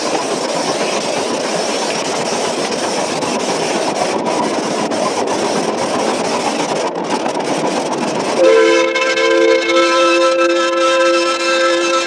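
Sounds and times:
running train noise: 0:00.0 - 0:12.0
steam locomotive chime whistle: 0:08.4 - 0:12.0.

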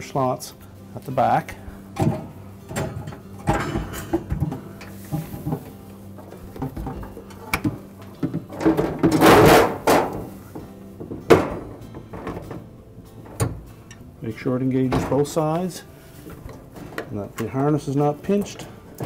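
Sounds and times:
knocks and rattles of motor assembly: 0:02.0 - 0:14.0, 0:16.2 - 0:19.0.

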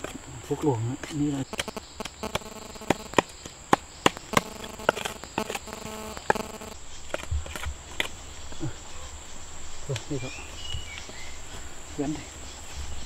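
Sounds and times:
high insect tone: 0:00.0 - 0:13.0
blade chopping plants: 0:01.0 - 0:06.5
steady low hum: 0:04.2 - 0:13.0.

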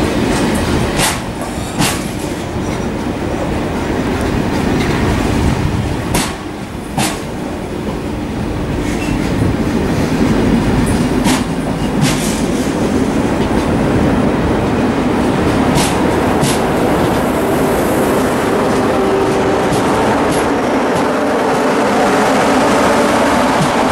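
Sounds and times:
train wheels rumbling on rail: 0:00.0 - 0:23.9
metallic clacks of wheels: 0:10.9 - 0:12.8.

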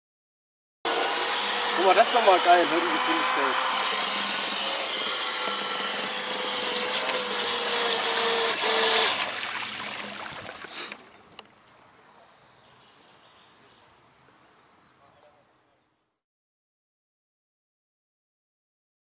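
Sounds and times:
rc speedboat motor whine: 0:00.9 - 0:11.1
water spray hissing: 0:07.8 - 0:11.1.

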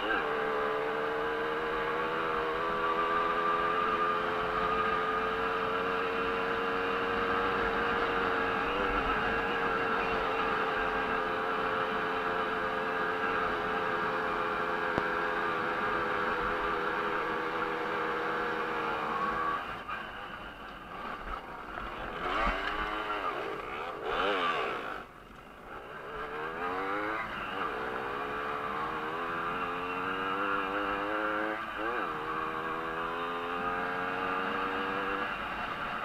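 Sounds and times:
moped engine revving: 0:20.9 - 0:36.0.

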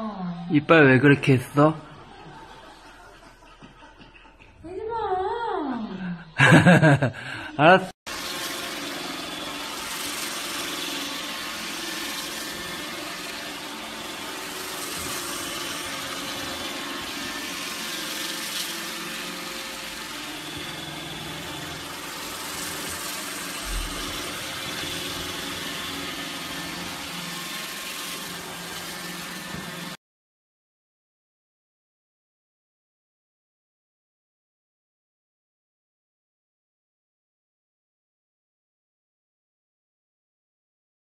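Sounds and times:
robot vacuum whirring: 0:08.1 - 0:30.0.

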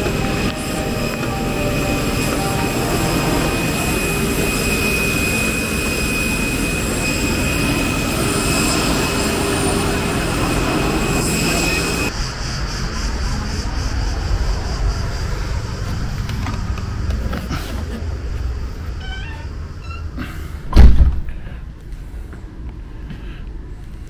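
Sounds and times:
thin high whine: 0:00.0 - 0:20.3
vehicle engine rumble: 0:12.0 - 0:24.0.

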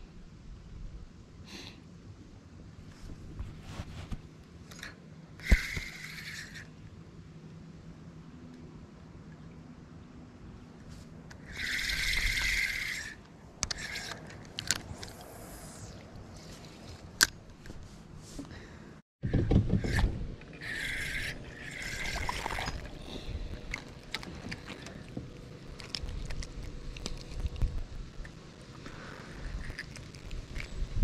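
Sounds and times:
fishing rod and reel clicks: 0:04.6 - 0:06.8, 0:11.3 - 0:15.3, 0:19.8 - 0:28.4.

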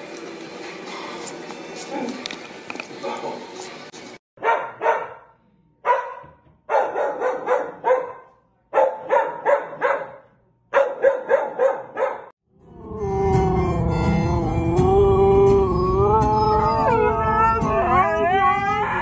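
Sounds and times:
dog barking: 0:04.4 - 0:12.3.

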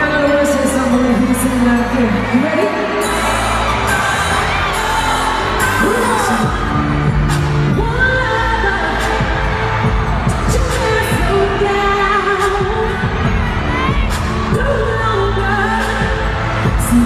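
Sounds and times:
woman singing into microphone: 0:03.8 - 0:17.0.

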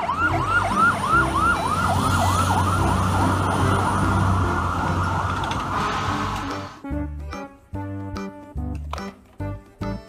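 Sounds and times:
fire truck siren yelping: 0:00.0 - 0:06.8
truck engine rumble: 0:00.0 - 0:06.8.

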